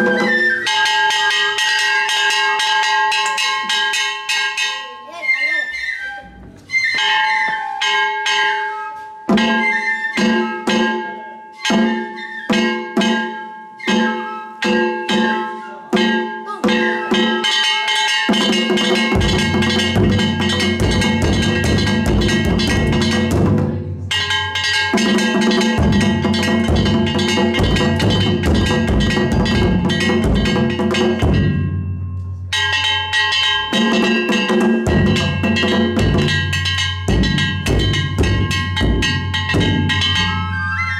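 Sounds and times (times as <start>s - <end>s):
taiko drum beating: 0.0s - 4.8s, 9.3s - 40.8s
bright metallic ringing: 0.0s - 40.9s
barrel drum struck with sticks: 18.3s - 31.8s, 33.7s - 40.4s.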